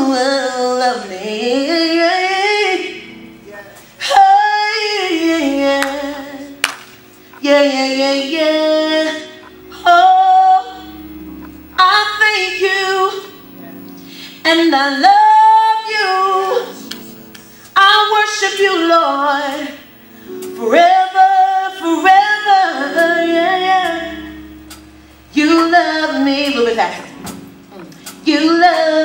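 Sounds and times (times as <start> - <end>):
woman singing: 0.0 - 3.4, 4.0 - 6.8, 7.4 - 11.2, 11.8 - 13.5, 14.4 - 17.2, 17.8 - 24.6, 25.3 - 29.0.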